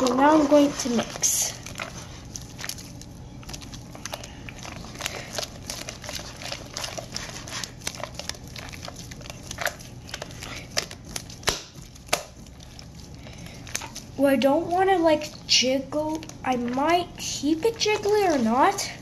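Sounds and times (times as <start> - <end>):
slime squishing and popping: 1.0 - 14.2.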